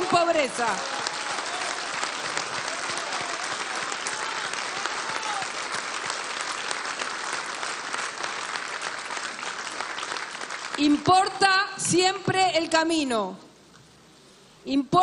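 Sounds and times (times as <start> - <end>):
crowd applauding: 0.0 - 11.3
faint crowd calls: 0.8 - 6.1.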